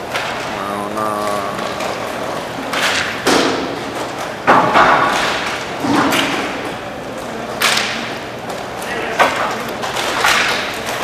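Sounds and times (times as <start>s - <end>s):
puck and sticks hitting boards: 2.6s - 6.8s, 7.5s - 11.0s.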